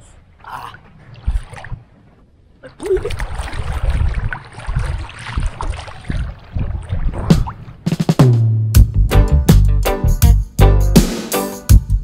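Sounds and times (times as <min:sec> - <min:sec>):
seawater sloshing and splashing: 0:00.0 - 0:08.2.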